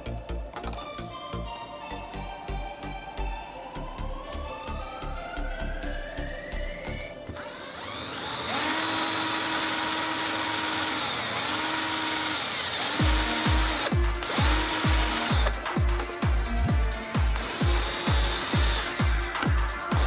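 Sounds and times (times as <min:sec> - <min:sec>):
cordless drill whining: 0:06.7 - 0:20.0
electronic music with bass beat: 0:12.9 - 0:20.0.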